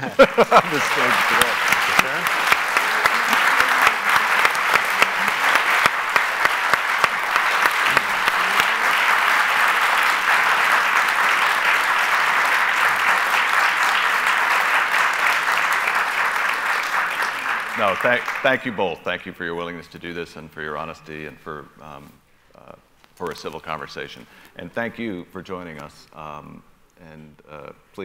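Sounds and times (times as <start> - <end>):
audience applause: 0.0 - 18.7.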